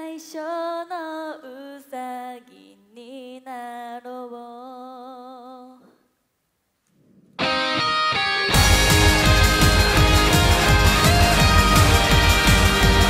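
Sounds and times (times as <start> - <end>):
woman singing a cappella: 0.0 - 6.1
full band playing: 7.5 - 13.0.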